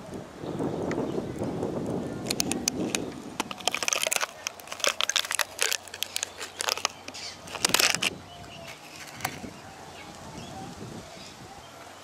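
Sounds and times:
dry plant material crackling: 2.2 - 9.6.

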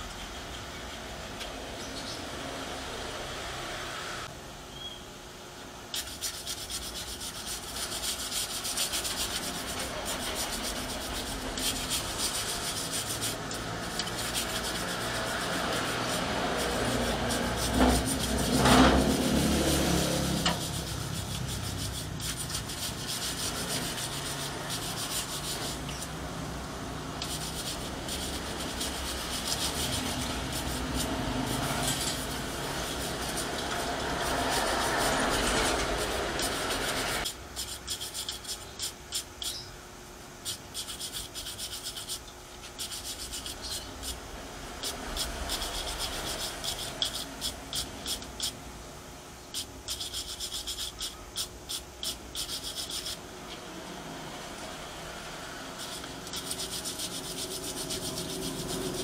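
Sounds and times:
hand scrubbing rubbing scrape: 6.0 - 26.1, 27.2 - 38.6, 55.8 - 59.0.

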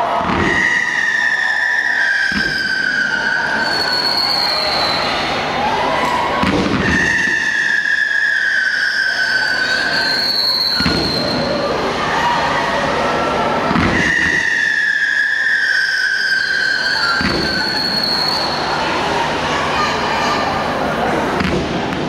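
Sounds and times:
firework bangs: 0.1 - 5.1, 6.4 - 11.6, 13.7 - 18.5
firework whistles: 0.4 - 5.4, 6.6 - 11.7, 13.8 - 18.8
short rising whistle: 0.4 - 5.4, 6.8 - 11.6, 13.9 - 18.6.

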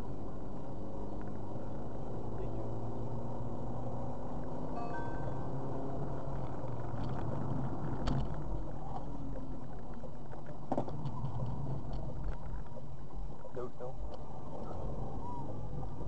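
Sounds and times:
car engine hum: 0.0 - 16.0
short high tone: 4.8 - 5.7.

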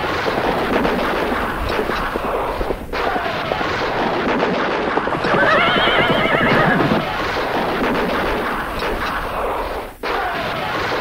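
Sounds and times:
horses galloping hoofbeats: 0.0 - 11.0
horse whinnying: 5.2 - 7.3.

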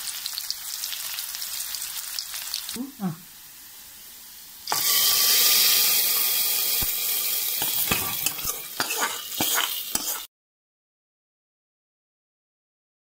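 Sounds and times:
hot oil sizzling: 0.0 - 10.3
metal pan clinks and scrapes: 7.6 - 10.3.

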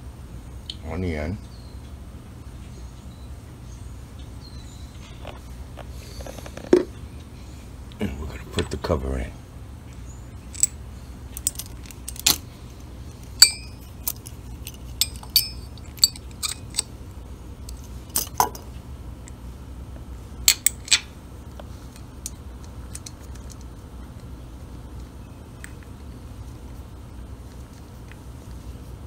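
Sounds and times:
metal clicks and clinks: 10.5 - 12.4, 13.3 - 16.9, 17.7 - 18.7.

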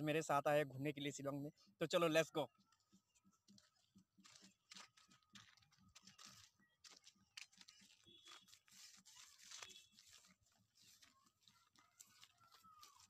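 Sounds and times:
crackly rustling: 2.6 - 13.0
footsteps crunching on dry grass: 3.5 - 13.0.

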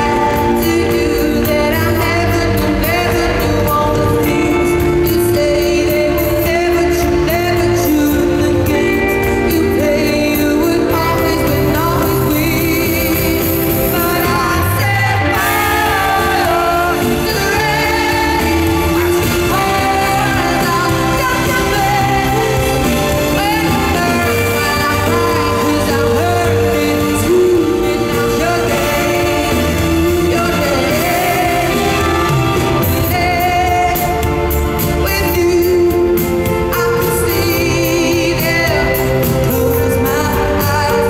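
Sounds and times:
female lead vocal: 0.0 - 41.0
live pop song with band: 0.0 - 41.0.

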